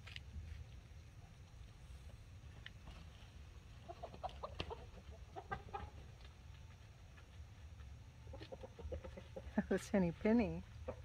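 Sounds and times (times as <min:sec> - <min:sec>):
hens clucking: 0:02.8 - 0:11.0.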